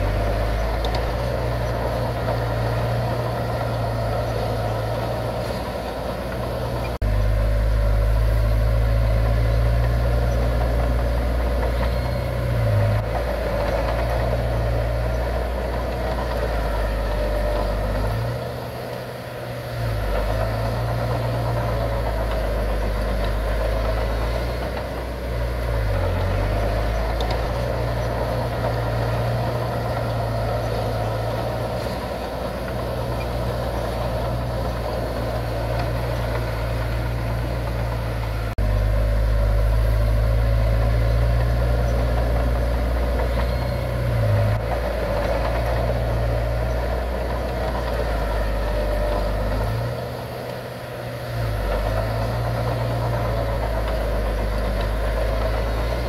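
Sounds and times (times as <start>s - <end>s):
heavy machinery diesel engines: 0.0s - 56.0s.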